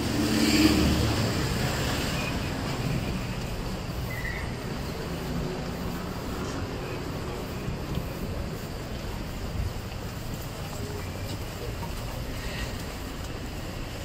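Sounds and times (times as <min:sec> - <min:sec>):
vehicle passing close by: 0:00.0 - 0:03.3
steady traffic hum: 0:00.0 - 0:14.0.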